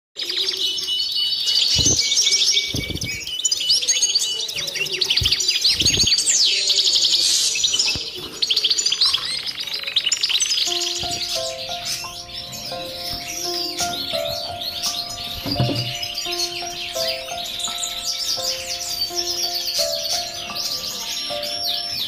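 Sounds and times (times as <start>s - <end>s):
songbird twittering song: 0.2s - 22.0s
low thuds: 13.0s - 16.2s.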